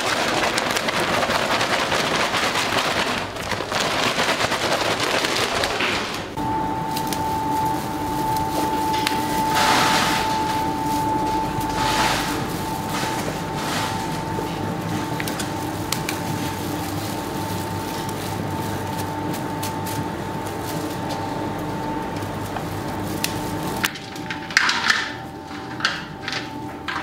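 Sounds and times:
machine hum with high tone: 5.9s - 27.0s
scraping sounds: 7.6s - 19.8s.

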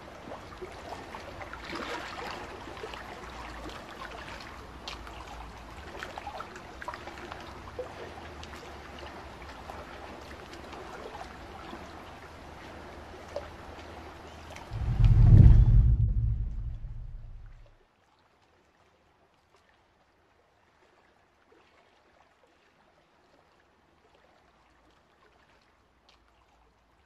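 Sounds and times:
small splashes and drips: 0.0s - 14.8s, 18.0s - 27.0s
water lapping and trickling: 0.0s - 15.4s, 16.1s - 27.0s
low steady rumble: 14.7s - 17.7s.

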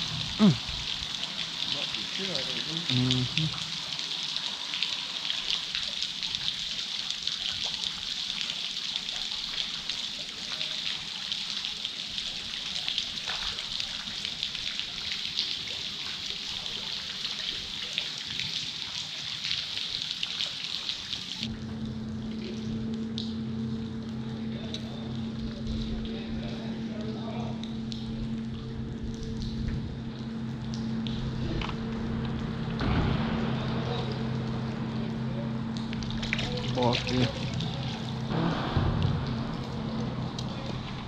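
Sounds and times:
rain falling on water and boat: 0.0s - 41.0s
low motor hum: 21.4s - 41.0s.

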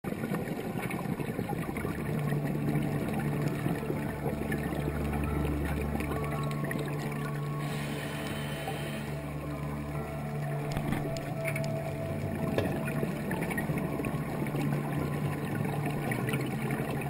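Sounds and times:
boat engine drone underwater: 0.1s - 17.0s
fine crackle: 0.1s - 17.0s.

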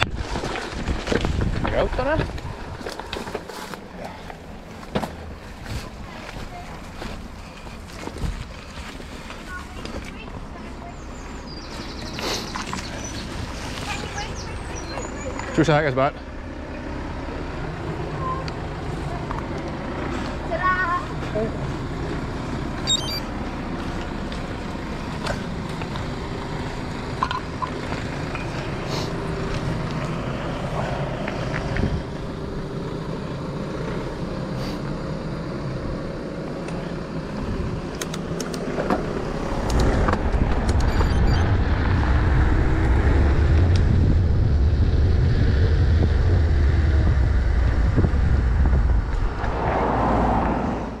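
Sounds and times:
bike tyre and road noise: 0.0s - 51.0s
road traffic: 0.0s - 51.0s
sharp clicks and knocks: 37.9s - 39.0s
loud low rumble: 39.1s - 51.0s.

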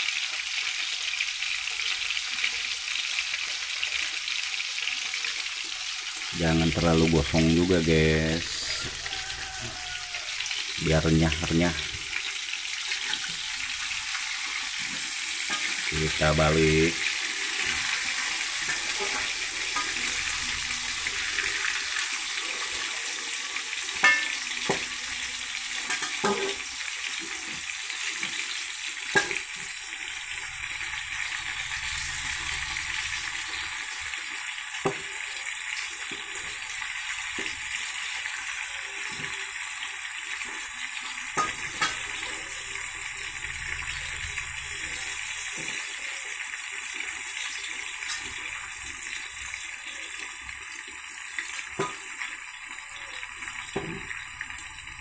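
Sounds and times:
food deep-frying in oil: 0.0s - 55.0s.

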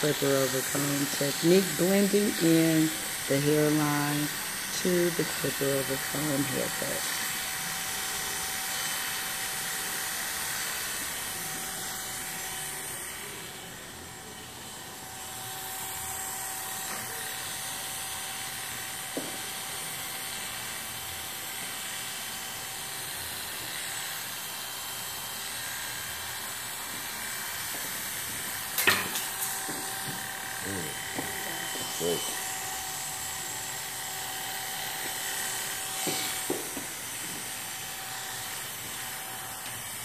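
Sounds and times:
electric hair clipper whining: 0.0s - 40.0s.

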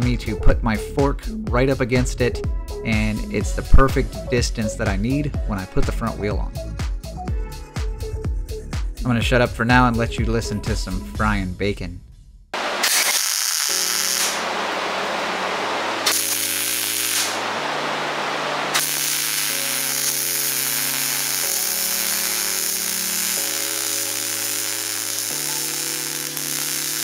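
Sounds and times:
background music: 0.0s - 12.4s, 13.2s - 27.0s
welding arc crackling: 12.6s - 27.0s.

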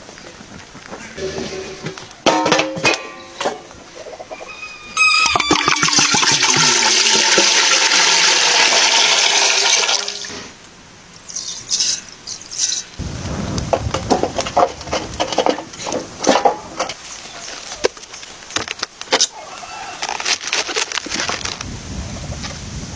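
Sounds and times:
water pouring into metal pot: 5.2s - 10.3s
cabbage rustling and creaking: 13.9s - 21.7s.

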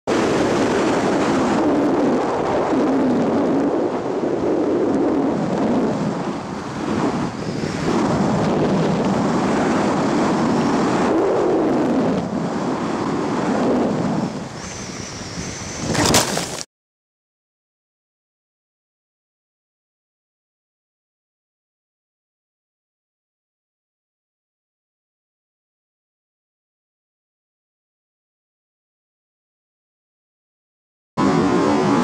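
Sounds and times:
air rushing over microphone: 0.1s - 16.6s.

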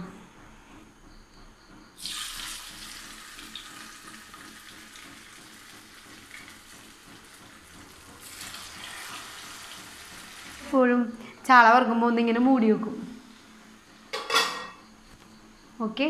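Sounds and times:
fish sizzling in hot oil: 2.0s - 7.6s, 8.2s - 10.6s.

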